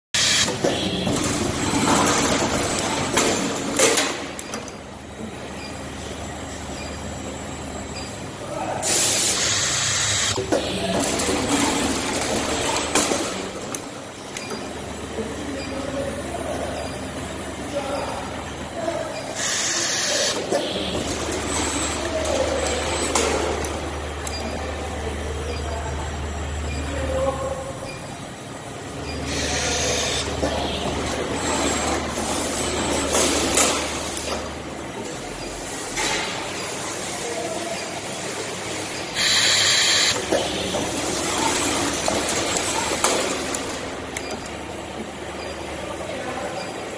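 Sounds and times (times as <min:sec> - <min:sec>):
machine low hum: 0:00.2 - 0:46.9
welding machine hissing: 0:08.8 - 0:10.4, 0:19.4 - 0:20.5, 0:39.2 - 0:40.2.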